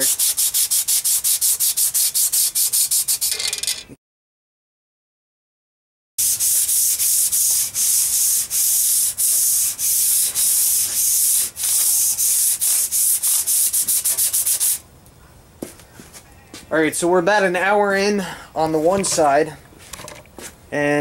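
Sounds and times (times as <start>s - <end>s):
sandpaper scratching on metal: 0.0s - 3.4s, 6.2s - 14.8s.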